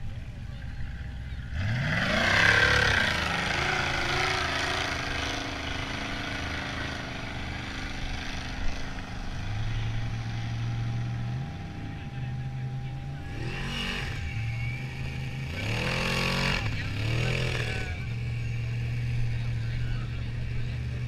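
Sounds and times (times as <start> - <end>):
steady low engine note: 0.0 - 21.0
buggy engine revving hard: 1.4 - 12.4, 13.0 - 21.0.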